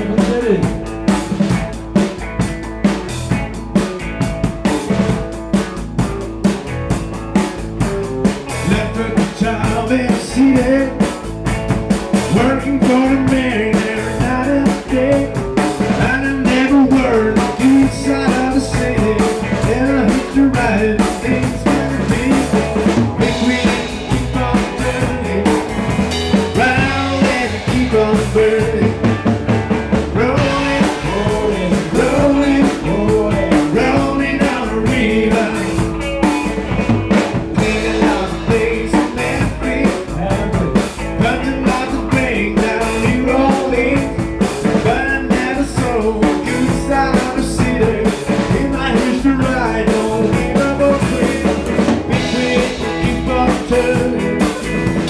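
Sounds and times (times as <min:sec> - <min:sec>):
man singing into microphone: 0:00.0 - 0:00.8, 0:08.6 - 0:11.2, 0:12.3 - 0:29.2, 0:30.1 - 0:35.9, 0:37.5 - 0:55.0
drum kit beat: 0:00.0 - 0:55.0
live rock band playing: 0:00.0 - 0:55.0.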